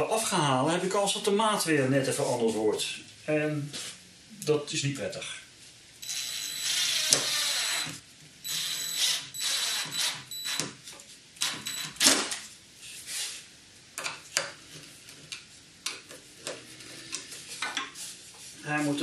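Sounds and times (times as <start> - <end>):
impact driver driving screws: 6.0 - 10.7.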